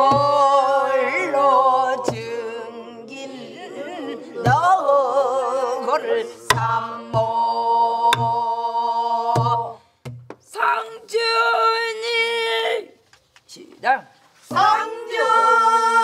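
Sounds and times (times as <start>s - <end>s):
barrel drum palm thumps: 6.5s - 8.5s, 9.3s - 10.5s.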